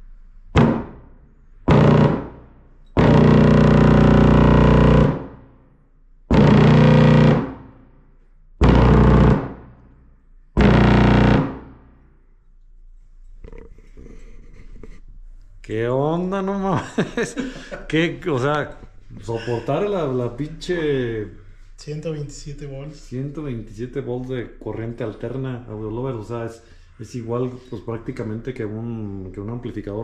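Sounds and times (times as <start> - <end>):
distorted mains buzz from subwoofer: 0.5 - 5.6, 6.3 - 7.8, 8.6 - 9.8, 10.6 - 11.9.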